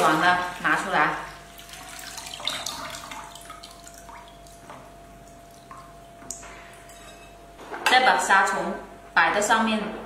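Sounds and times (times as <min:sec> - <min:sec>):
water splashing in a basin: 0:00.0 - 0:06.4
water dripping and trickling: 0:01.4 - 0:06.5.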